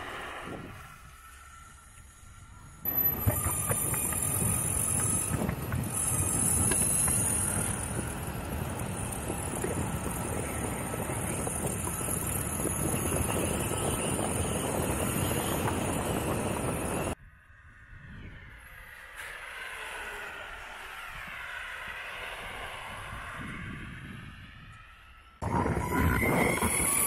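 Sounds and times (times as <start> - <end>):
high motor whine: 0.0 - 27.0
wind on microphone: 2.7 - 18.8, 22.4 - 27.0
skateboard wheel rumble: 2.9 - 17.2, 25.4 - 27.0.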